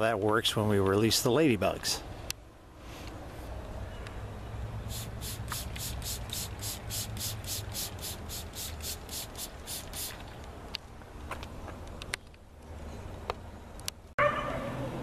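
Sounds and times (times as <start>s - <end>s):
spray bottle hissing sprays: 4.9s - 10.3s.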